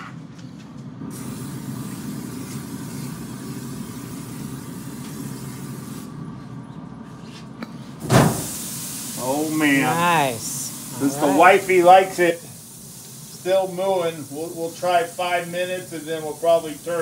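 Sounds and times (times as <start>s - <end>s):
steady low hum: 0.0s - 17.0s
cooking spray hissing: 1.0s - 6.2s, 8.0s - 17.0s
steaks sizzling on grill grates: 1.2s - 6.0s, 8.3s - 17.0s.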